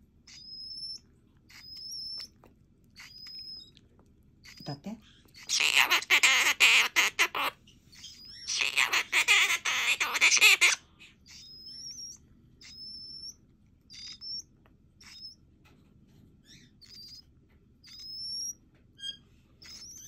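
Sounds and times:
parakeet scratchy chatter: 0:01.5 - 0:02.3, 0:03.0 - 0:03.7, 0:04.4 - 0:13.2, 0:19.0 - 0:20.0
parakeet rising whistles: 0:11.2 - 0:15.4.

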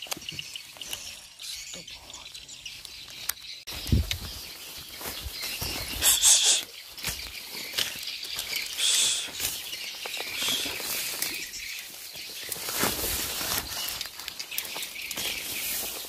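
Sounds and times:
vegetation rustling and swishing: 0:03.7 - 0:16.0.

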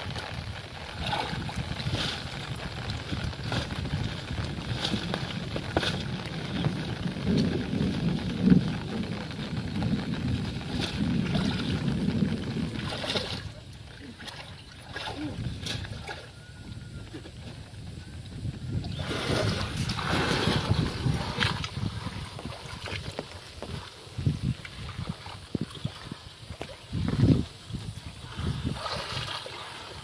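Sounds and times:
wind on microphone: 0:00.0 - 0:30.0
water sloshing: 0:08.7 - 0:16.4, 0:18.9 - 0:30.0.

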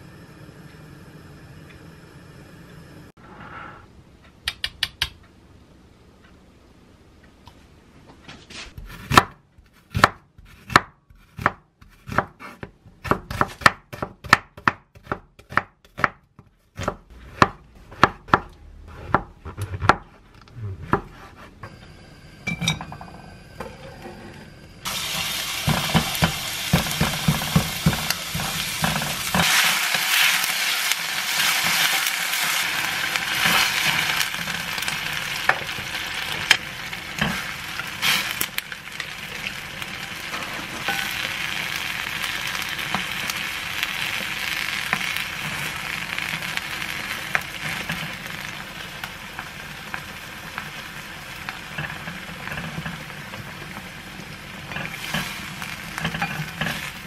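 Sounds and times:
knife chopping on wooden board: 0:08.8 - 0:20.1
onion sizzling in a pan: 0:24.8 - 0:57.0.

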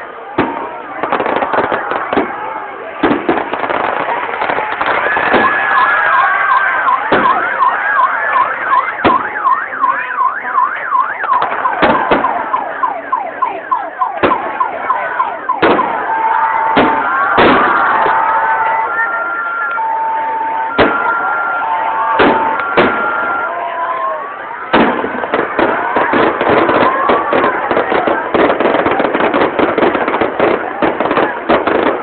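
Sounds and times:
firework bangs: 0:00.3 - 0:32.0
electronic siren wailing: 0:05.0 - 0:24.6.

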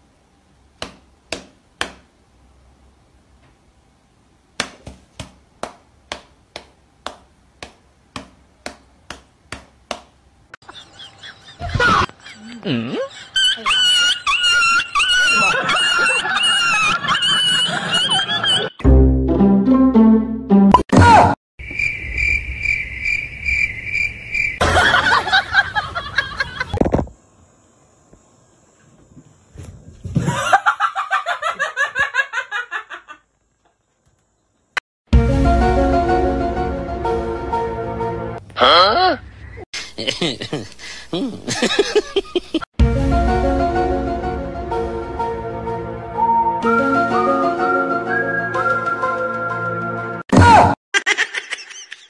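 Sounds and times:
cricket chirping: 0:21.6 - 0:24.6.

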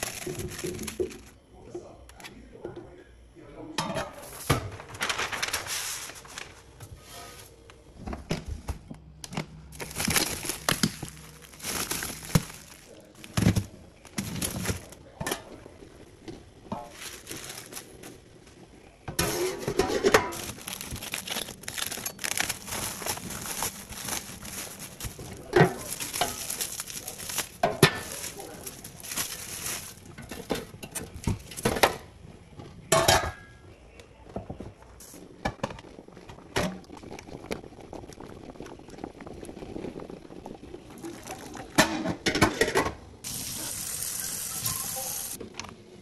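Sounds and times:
packaging crinkling: 0:00.0 - 0:01.4, 0:04.8 - 0:06.7, 0:09.7 - 0:15.0, 0:16.9 - 0:18.2, 0:20.2 - 0:30.5.

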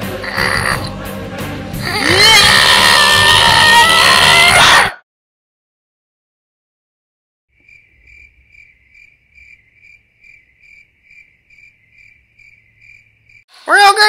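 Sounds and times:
crickets chirping: 0:07.5 - 0:13.5.

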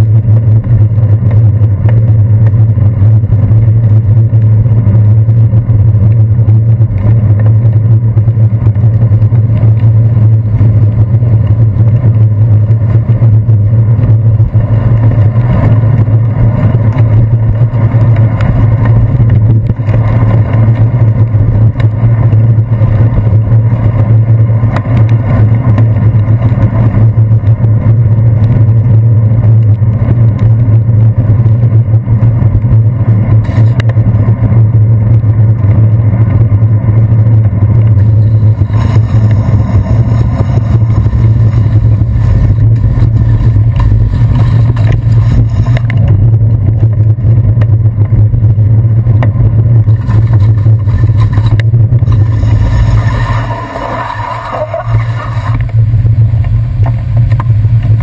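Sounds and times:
road and wind noise rumble: 0:00.0 - 0:58.0
passing motor vehicles: 0:32.3 - 0:58.0.

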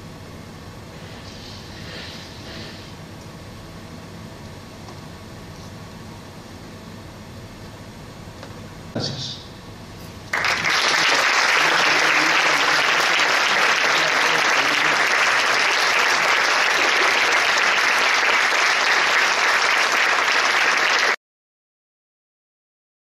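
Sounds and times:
audience applauding: 0:10.3 - 0:21.2.

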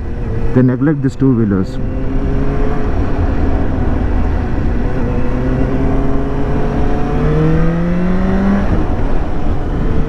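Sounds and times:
wind and road noise: 0:00.0 - 0:10.0
motorcycle engine: 0:01.6 - 0:10.0.

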